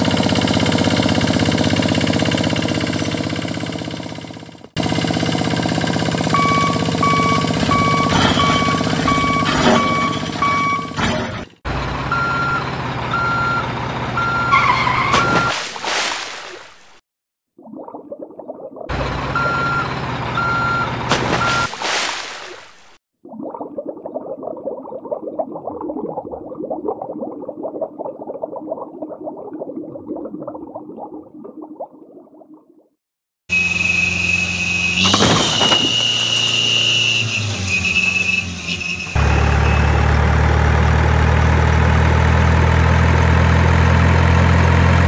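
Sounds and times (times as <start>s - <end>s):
diesel truck engine running: 0.0s - 15.4s, 18.9s - 21.7s, 33.5s - 45.0s
truck reversing alarm beeping: 5.8s - 15.6s, 19.0s - 21.7s, 33.5s - 40.1s
muffled underwater bubbling: 23.2s - 32.9s.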